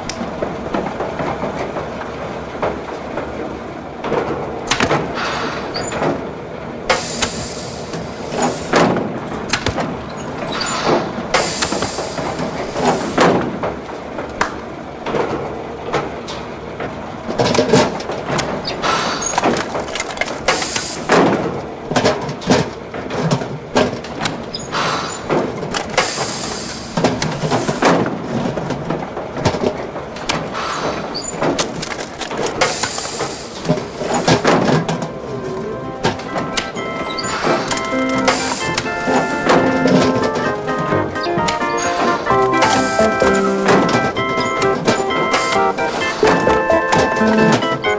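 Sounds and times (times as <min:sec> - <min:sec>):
hydraulic hiss: 0:06.9 - 0:08.9, 0:10.5 - 0:13.3, 0:20.5 - 0:21.1, 0:26.0 - 0:27.9, 0:32.6 - 0:34.5, 0:37.2 - 0:39.4, 0:41.8 - 0:43.3.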